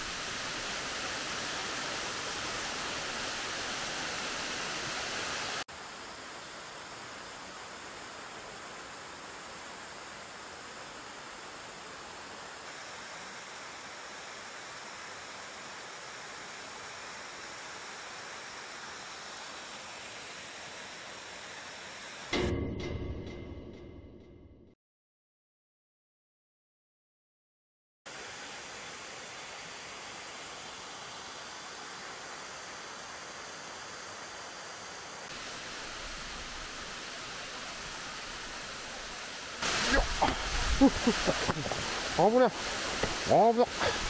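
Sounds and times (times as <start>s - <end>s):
waterfall rushing: 0.0s - 5.7s, 28.1s - 44.0s
quieter hiss: 0.0s - 22.4s, 28.1s - 44.0s.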